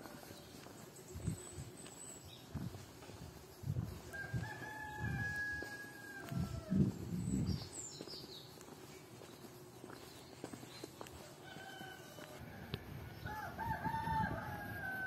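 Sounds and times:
rooster crowing: 0:04.1 - 0:06.9, 0:11.2 - 0:15.0
small bird chirping: 0:07.1 - 0:11.1.

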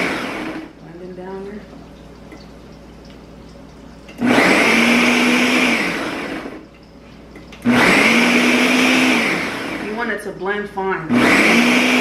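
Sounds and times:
blender chopping food: 0:00.0 - 0:00.8, 0:04.2 - 0:06.6, 0:07.6 - 0:10.1, 0:11.1 - 0:12.0.

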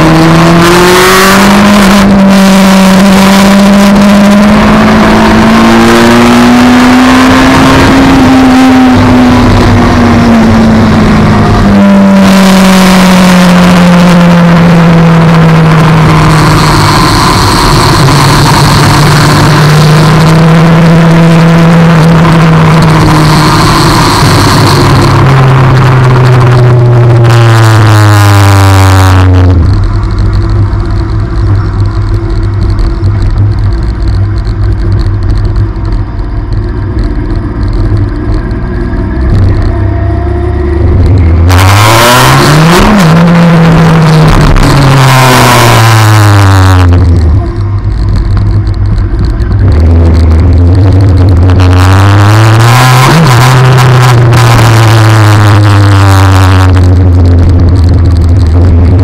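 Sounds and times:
motorcycle engine running: 0:00.0 - 0:59.0
wind noise on microphone: 0:00.0 - 0:59.0.

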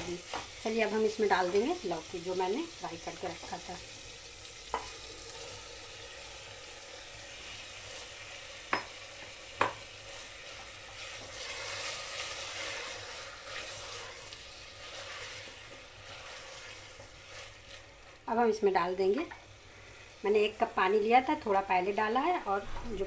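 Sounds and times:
vegetables sizzling in a pot: 0:00.0 - 0:23.0
spatula stirring: 0:07.8 - 0:18.3.

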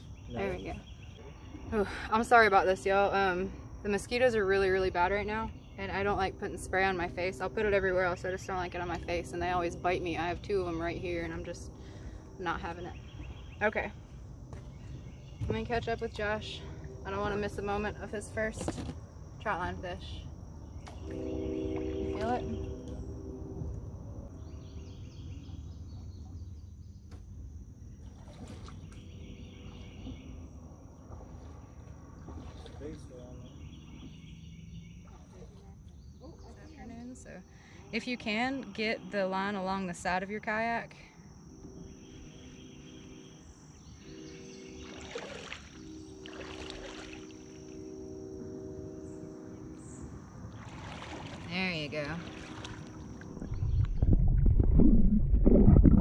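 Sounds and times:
high insect drone: 0:00.0 - 0:53.7
low hum: 0:00.0 - 0:56.0
water sloshing and dripping: 0:20.6 - 0:23.9, 0:27.9 - 0:36.2, 0:44.0 - 0:47.8, 0:50.4 - 0:56.0
thin high whine: 0:20.8 - 0:25.4, 0:41.6 - 0:50.7
low rumble: 0:51.5 - 0:56.0.

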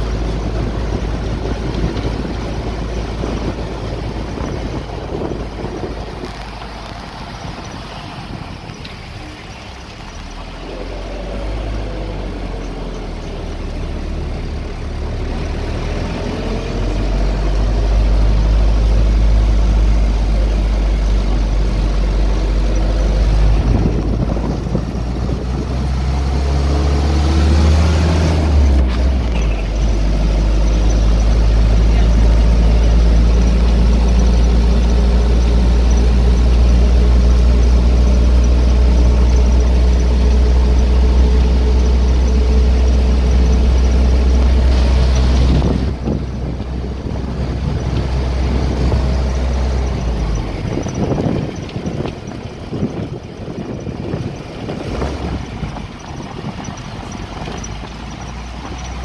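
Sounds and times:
minibus engine drone: 0:00.0 - 0:59.0.

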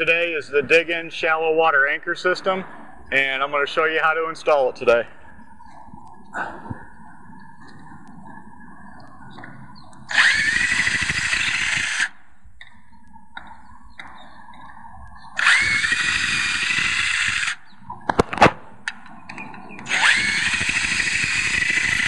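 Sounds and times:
cordless drill whining: 0:10.1 - 0:12.2, 0:15.4 - 0:17.6, 0:19.9 - 0:22.0.

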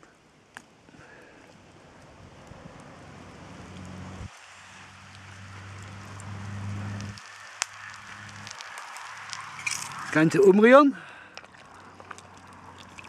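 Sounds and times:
campfire crackling and hissing: 0:00.0 - 0:13.0
steady low hum: 0:05.4 - 0:07.2.

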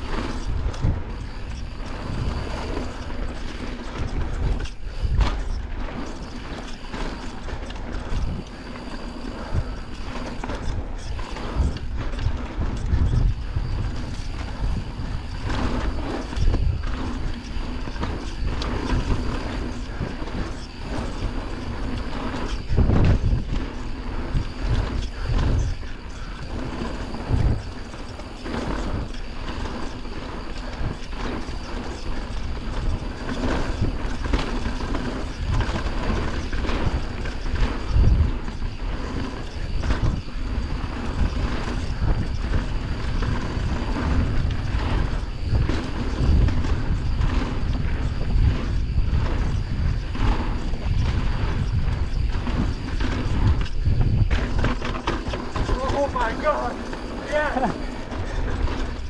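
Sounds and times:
bike frame and chain clattering: 0:00.0 - 0:59.0
bike tyres rolling over dirt: 0:00.0 - 0:59.0
steady low rumble: 0:31.7 - 0:59.0.

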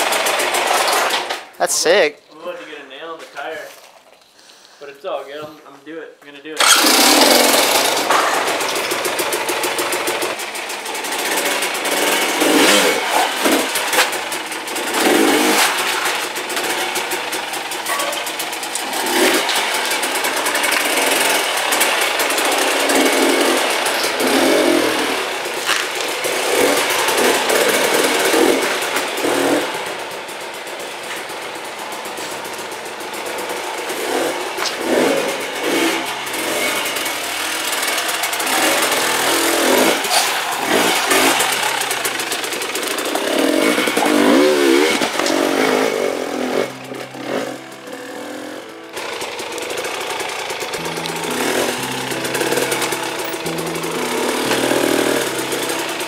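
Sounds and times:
dirt bike engine revving: 0:00.0 - 0:01.5, 0:06.6 - 0:56.0.

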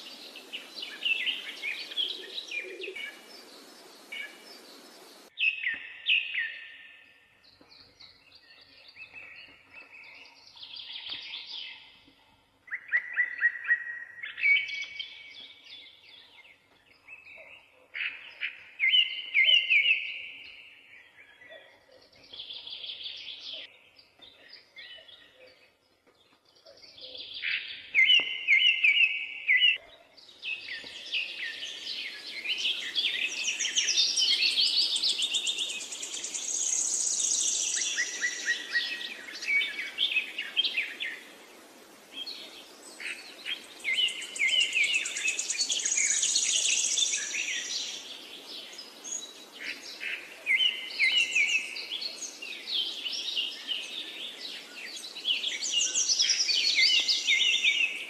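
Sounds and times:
steady background hiss: 0:00.0 - 0:05.3, 0:30.3 - 0:58.0
small birds chirping: 0:00.0 - 0:58.0.

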